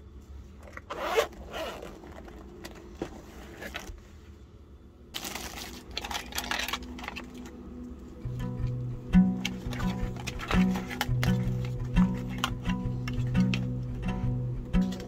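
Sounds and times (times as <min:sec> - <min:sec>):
hands rummaging through cables and bag: 0:00.6 - 0:04.0, 0:05.2 - 0:07.9, 0:09.4 - 0:13.7
zipper being pulled open: 0:00.8 - 0:02.6.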